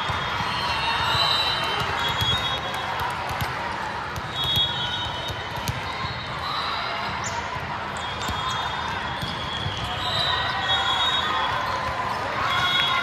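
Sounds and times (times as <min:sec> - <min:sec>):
crowd chatter: 0:00.0 - 0:13.0
balls thudding on court: 0:09.1 - 0:09.8.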